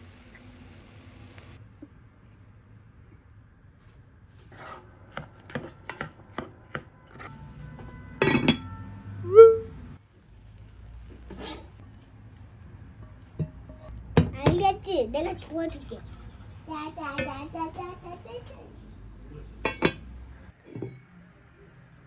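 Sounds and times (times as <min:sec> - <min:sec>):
kitchen clatter: 0:04.6 - 0:06.9, 0:08.2 - 0:08.7, 0:19.6 - 0:21.0.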